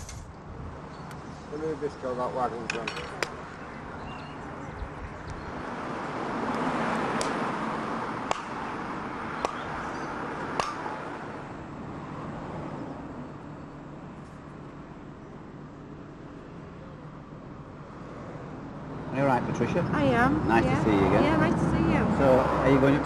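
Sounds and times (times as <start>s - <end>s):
hatchet chopping wood: 8.2s - 8.6s, 9.4s - 9.7s, 10.5s - 10.9s.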